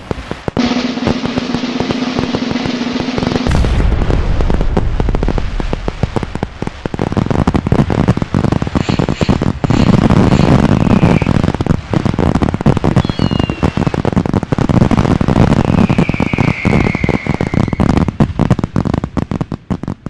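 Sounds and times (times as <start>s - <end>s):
fireworks crackling and banging: 0.0s - 20.0s
firework whistles falling: 8.7s - 11.4s, 12.8s - 14.1s, 15.4s - 18.1s.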